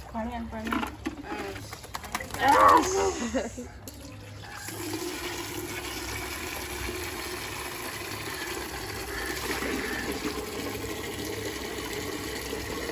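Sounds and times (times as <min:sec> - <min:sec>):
water running from hose: 0:04.4 - 0:12.9.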